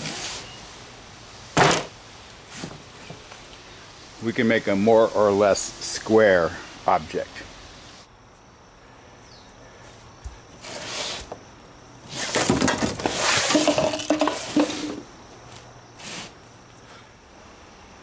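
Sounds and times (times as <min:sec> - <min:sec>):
rubber mats scraping on board: 0:02.5 - 0:03.2, 0:10.6 - 0:11.4, 0:12.1 - 0:15.0, 0:16.0 - 0:16.4
rubbery sliding and knocking: 0:02.5 - 0:03.2, 0:10.6 - 0:11.4, 0:12.1 - 0:15.0, 0:16.0 - 0:16.4.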